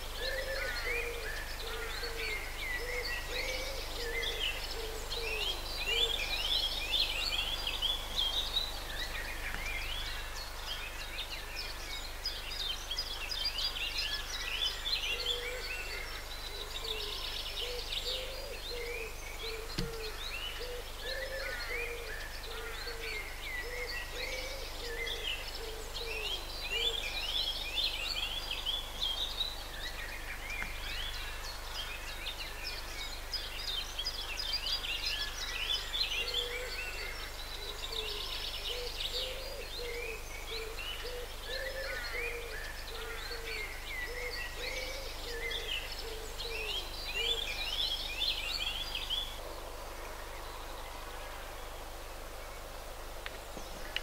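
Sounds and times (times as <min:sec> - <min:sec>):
low cooing bird call: 0:00.0 - 0:07.7, 0:14.6 - 0:27.4, 0:35.7 - 0:51.7
songbirds chirping and trilling: 0:00.0 - 0:54.0.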